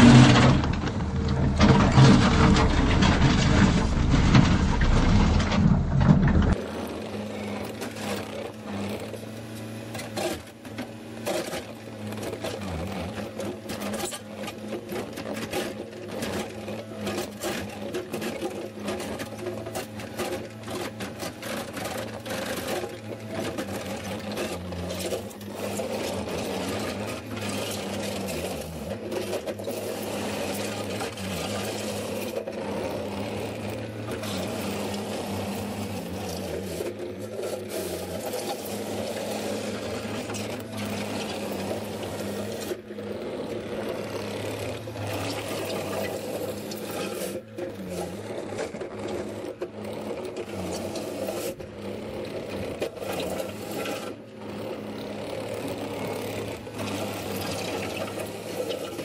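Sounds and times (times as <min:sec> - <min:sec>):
bucket scraping dirt and concrete: 0:00.0 - 0:06.7, 0:11.4 - 0:49.8
diesel engine running: 0:00.0 - 0:10.0.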